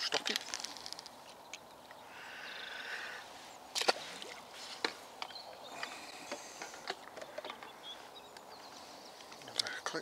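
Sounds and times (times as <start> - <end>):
clicks and knocks of handling fish: 0.0 - 1.7, 3.7 - 7.8.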